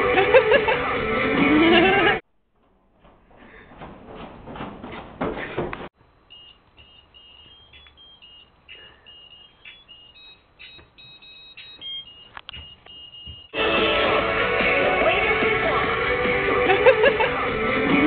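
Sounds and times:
high electronic beeps tune: 6.3s - 13.6s
clicks: 6.4s - 13.6s
loud music: 13.6s - 18.0s.

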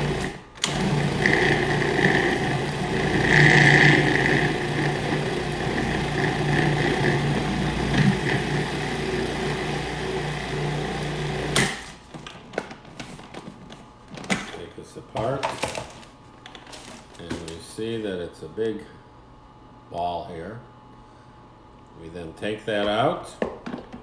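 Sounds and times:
food processor motor running: 0.0s - 12.0s
dough tumbling in food processor: 0.0s - 14.2s.

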